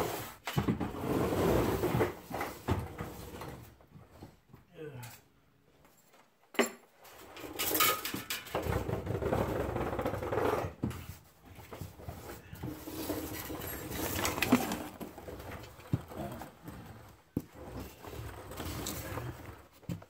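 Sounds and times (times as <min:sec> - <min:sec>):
rustling and scraping of crawling: 0:09.0 - 0:20.0.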